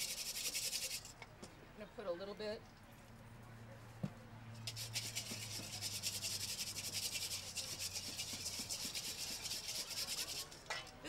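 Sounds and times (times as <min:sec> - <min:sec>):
whisk scraping metal bowl: 0:00.0 - 0:01.1, 0:04.6 - 0:10.8.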